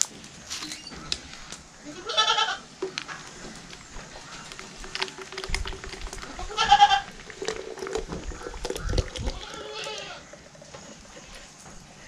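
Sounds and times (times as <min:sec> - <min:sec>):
goat bleating: 0:01.9 - 0:02.6, 0:06.4 - 0:07.1, 0:09.3 - 0:10.2.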